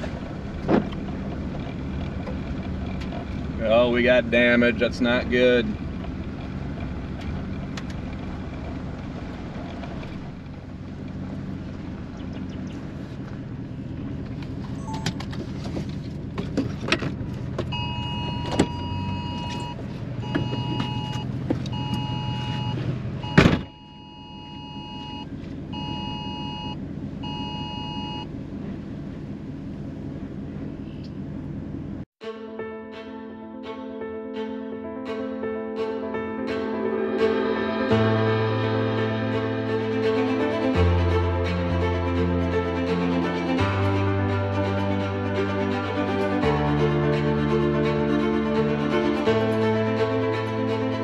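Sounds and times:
car hum: 0.0s - 32.1s, 35.9s - 51.0s
phone two-tone alert beeps: 14.8s - 15.2s, 17.8s - 21.2s, 25.8s - 28.2s
loud thump: 23.3s - 23.8s.

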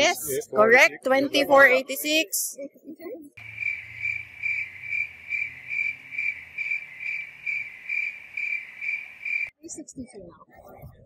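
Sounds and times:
crickets chirping: 3.4s - 9.5s.

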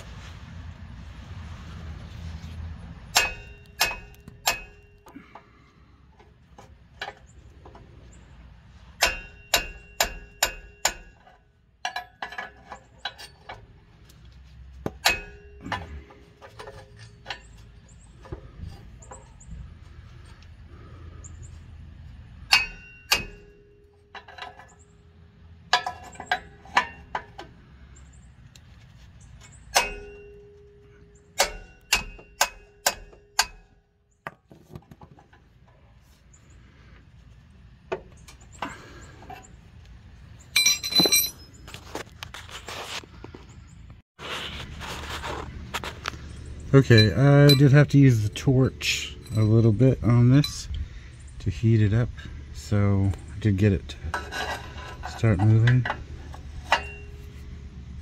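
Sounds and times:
hammer striking metal wrench: 3.1s - 5.1s, 9.0s - 13.6s, 14.9s - 17.6s, 22.5s - 24.7s, 29.7s - 30.8s, 31.4s - 33.8s, 55.4s - 57.3s.

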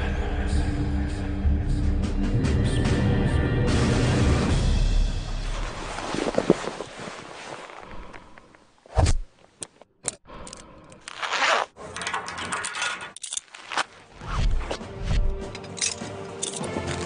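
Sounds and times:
metal gear clinking: 11.8s - 14.0s, 14.7s - 17.0s.

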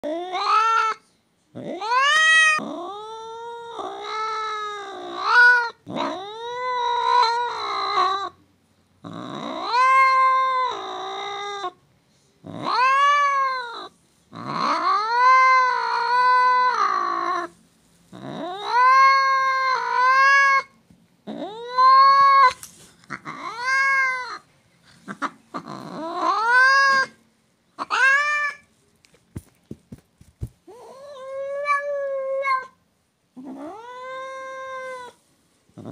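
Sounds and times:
cat angrily yowling: 0.0s - 1.0s, 1.6s - 8.4s, 9.1s - 11.8s, 12.5s - 17.5s, 18.2s - 20.7s, 21.3s - 24.4s, 25.2s - 27.2s, 27.8s - 28.6s, 30.7s - 32.8s.

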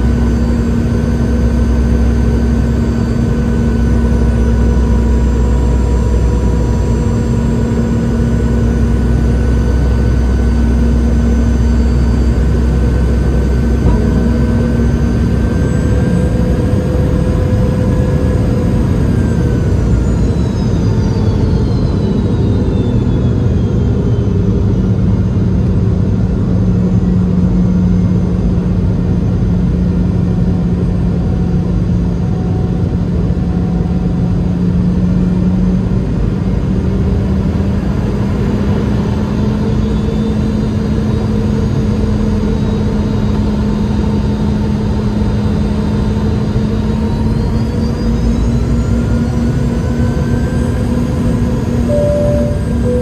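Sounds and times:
jet engine cabin hum: 0.0s - 37.6s, 49.4s - 53.0s
high whines: 51.6s - 53.0s.

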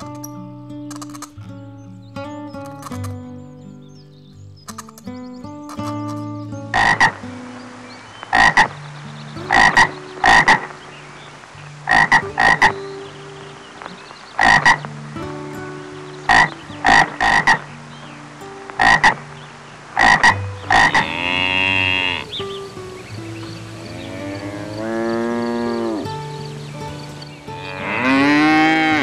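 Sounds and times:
frog croaking: 6.7s - 7.2s, 8.2s - 8.8s, 9.5s - 12.8s, 14.2s - 14.9s, 16.3s - 17.7s, 18.7s - 26.7s
cow mooing: 20.7s - 22.4s, 23.8s - 26.2s, 27.5s - 29.0s.

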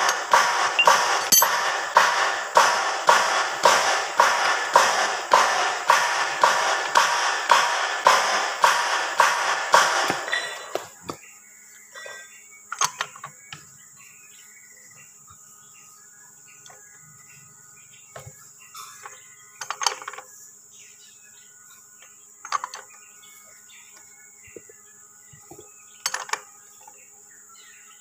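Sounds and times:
metal-on-metal clanks: 0.0s - 10.8s, 18.8s - 20.2s, 22.4s - 23.0s, 25.5s - 26.5s
high insect drone: 0.0s - 28.0s
faint bird chirps: 10.2s - 28.0s.

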